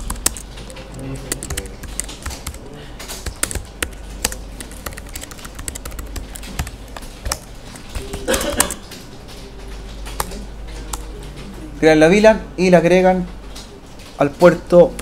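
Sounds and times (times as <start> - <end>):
keyboard typing clicks: 0.0 - 11.7.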